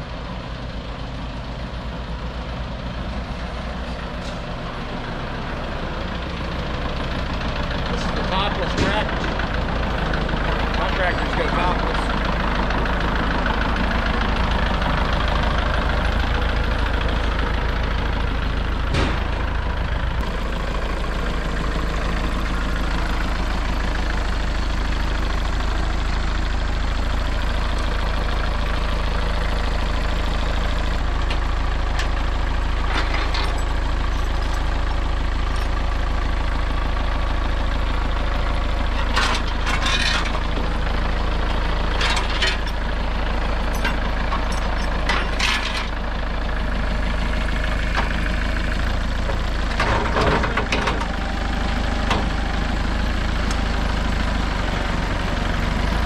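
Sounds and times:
tractor diesel engine idling: 0:00.0 - 0:56.0
metal clanks and rattles: 0:06.6 - 0:20.3, 0:31.2 - 0:35.9, 0:38.5 - 0:46.5, 0:47.4 - 0:51.2.

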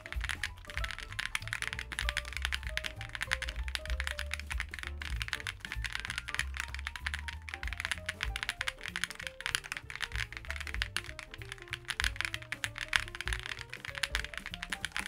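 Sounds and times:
background music: 0:00.0 - 0:15.0
fast mechanical keyboard typing: 0:00.0 - 0:15.0.

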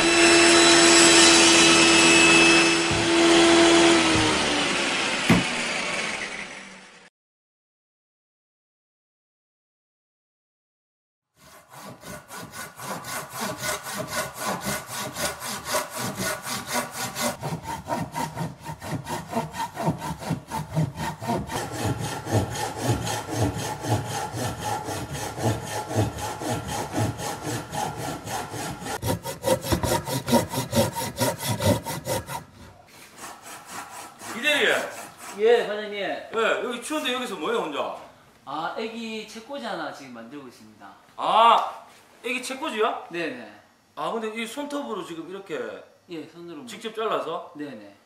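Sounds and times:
handsaw rasping through wood: 0:00.0 - 0:05.7, 0:11.4 - 0:35.7.

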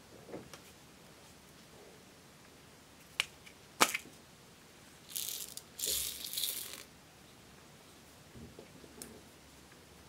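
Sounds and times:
tiny beads rattling: 0:05.1 - 0:06.9.

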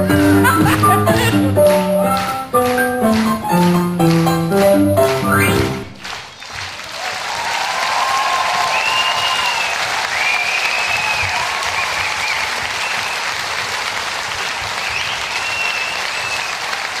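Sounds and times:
audience applauding: 0:00.0 - 0:17.0
high whistles: 0:08.7 - 0:13.3, 0:14.8 - 0:16.6.

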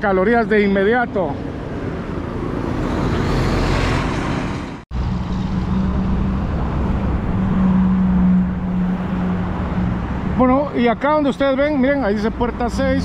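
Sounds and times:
road traffic passing: 0:00.0 - 0:13.0
low engine drone: 0:04.9 - 0:10.4.

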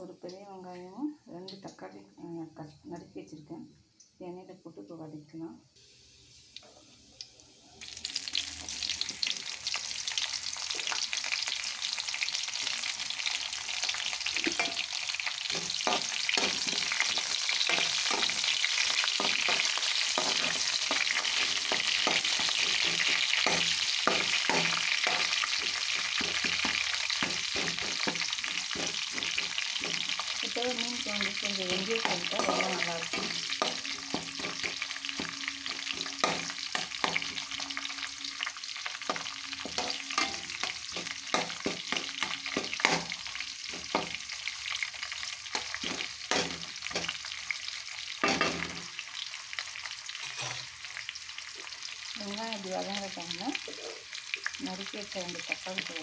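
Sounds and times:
onions sizzling in hot oil: 0:05.8 - 0:56.0
metal spatula scraping a pan: 0:14.4 - 0:44.2, 0:45.5 - 0:47.2, 0:50.2 - 0:50.7.

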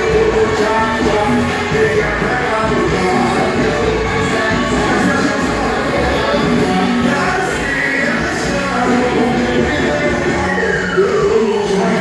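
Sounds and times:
dance music with band: 0:00.0 - 0:12.0
person singing: 0:00.0 - 0:12.0.

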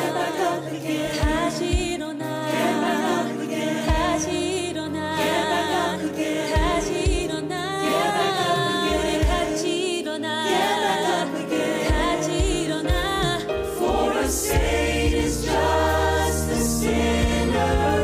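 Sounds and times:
sustained instrumental backing: 0:00.0 - 0:18.0
voices singing worship song: 0:00.0 - 0:18.0
low thumps: 0:11.9 - 0:18.0.

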